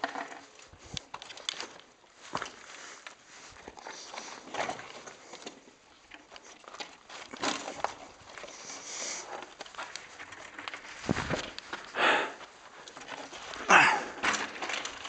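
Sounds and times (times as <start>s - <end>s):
footsteps on sand and rock: 0.8s - 5.2s, 6.3s - 14.2s
bike tyre crunching over sand: 6.2s - 15.0s.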